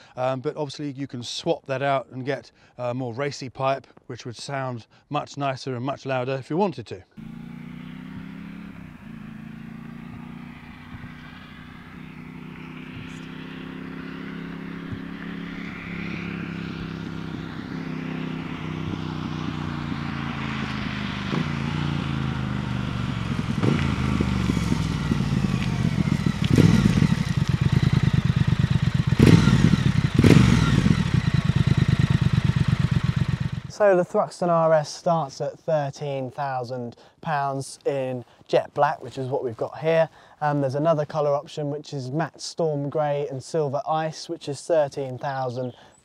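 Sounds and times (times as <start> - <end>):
motorcycle engine: 7.2 - 33.8
motorcycle throttle blips: 7.2 - 33.8.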